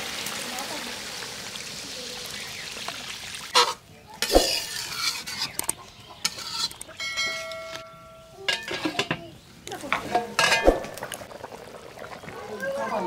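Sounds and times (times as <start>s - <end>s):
fish sizzling in a pan: 0.0s - 5.5s
spoon scraping and clinking on pan: 3.6s - 9.2s, 10.0s - 10.8s.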